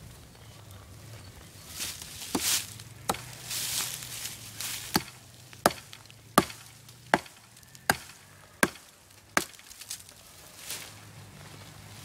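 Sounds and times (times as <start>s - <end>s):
stone axe chopping tree trunk: 2.3s - 3.4s, 4.9s - 9.7s.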